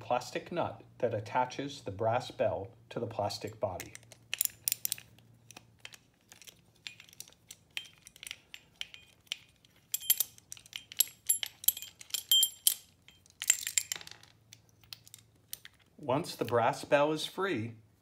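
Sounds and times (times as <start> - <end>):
small metallic clinks: 3.4 - 15.9.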